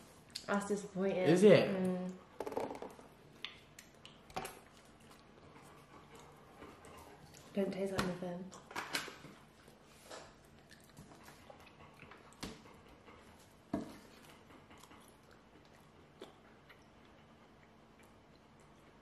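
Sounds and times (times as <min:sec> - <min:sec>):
faint chewing: 0:03.2 - 0:07.7, 0:08.4 - 0:19.0.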